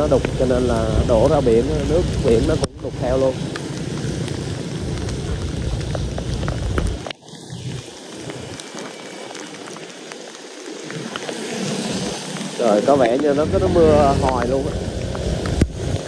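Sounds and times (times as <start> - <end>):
rain falling: 0.0 - 16.0
low rumble: 12.7 - 16.0.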